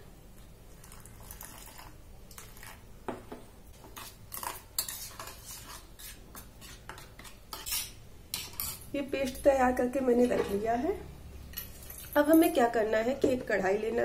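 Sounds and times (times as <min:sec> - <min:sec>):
spoon scraping steel bowl: 0:03.8 - 0:09.4.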